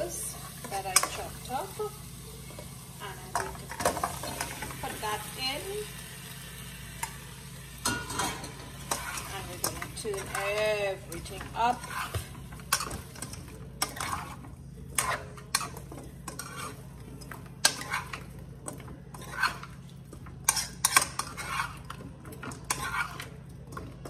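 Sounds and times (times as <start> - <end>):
metal spoon scraping a pot: 7.8 - 24.0.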